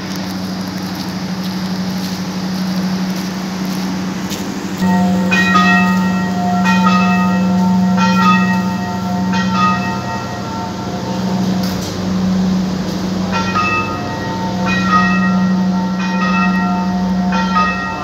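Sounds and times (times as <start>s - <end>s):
steady low hum: 0.0s - 18.0s
bell-like chime melody: 4.8s - 11.7s.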